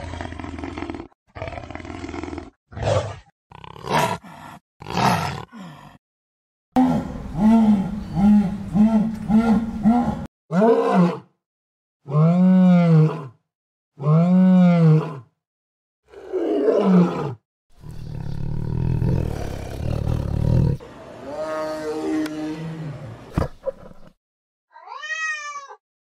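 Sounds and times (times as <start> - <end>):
big cat roars: 0.0 - 6.0, 6.8 - 11.2, 16.1 - 24.1
low rumbling growl: 6.8 - 10.3
jaguar grunting call: 6.8 - 11.1.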